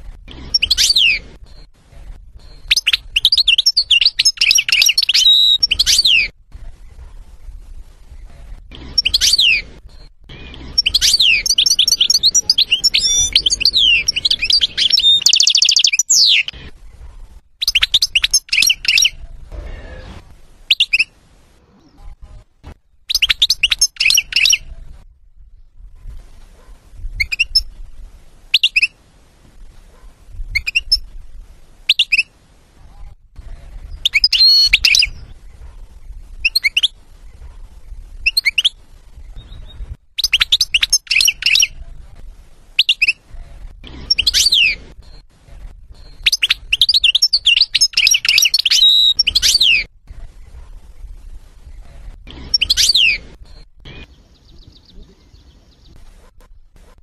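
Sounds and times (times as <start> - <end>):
goldfinch chirping and twittering: 8.8 - 16.6, 33.8 - 35.6, 43.9 - 45.2, 46.0 - 50.6, 52.3 - 56.0.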